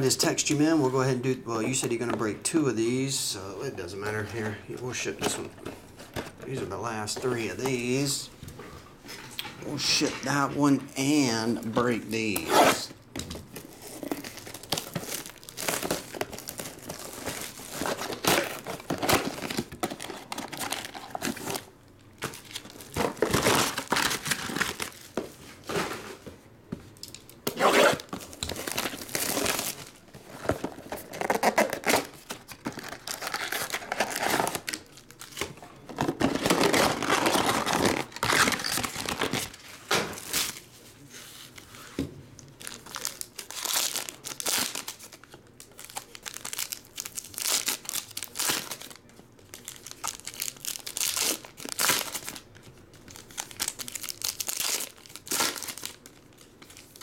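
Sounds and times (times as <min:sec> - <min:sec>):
plastic wrapping tearing and crinkling: 0:13.5 - 0:25.2, 0:27.0 - 0:40.8, 0:42.4 - 0:57.0.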